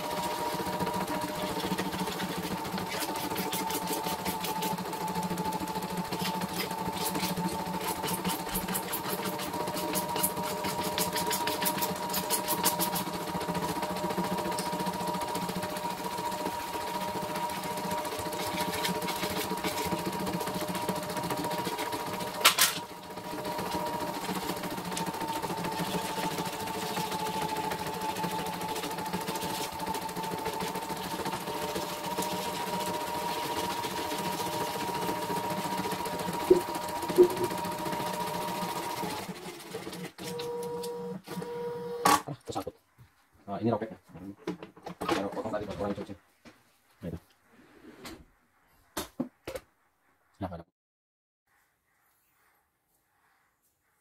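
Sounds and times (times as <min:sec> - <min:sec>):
sharp machine clack: 0:00.0 - 0:39.1
embroidery machine whine and hum: 0:00.0 - 0:39.3.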